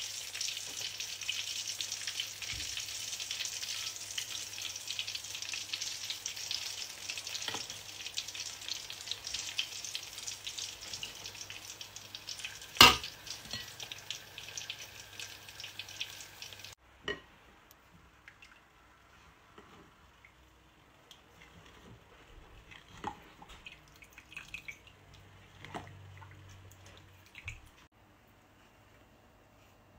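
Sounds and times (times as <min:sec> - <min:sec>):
hot oil sizzling: 0:00.0 - 0:16.8.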